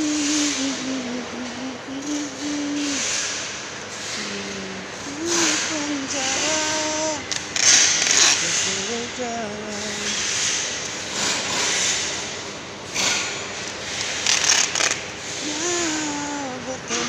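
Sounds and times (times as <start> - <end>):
person speaking: 0.0 - 3.1, 4.2 - 7.3, 8.2 - 10.2, 15.4 - 17.0.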